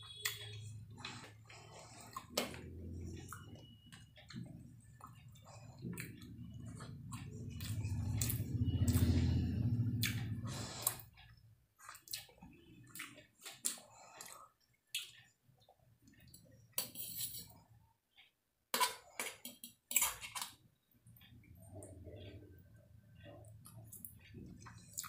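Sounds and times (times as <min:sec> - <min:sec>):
fork scraping a metal plate: 0:16.8 - 0:17.6.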